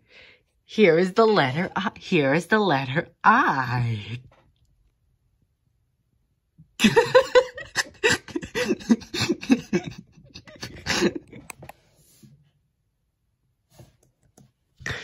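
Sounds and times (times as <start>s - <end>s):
person laughing: 6.8s - 11.7s.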